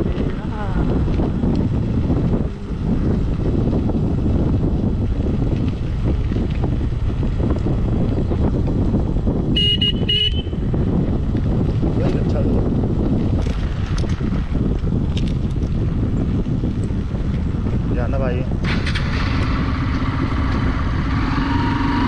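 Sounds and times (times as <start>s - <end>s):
motorcycle engine running: 0.0s - 22.0s
wind buffeting microphone: 0.0s - 22.0s
horn beeps: 9.6s - 10.6s.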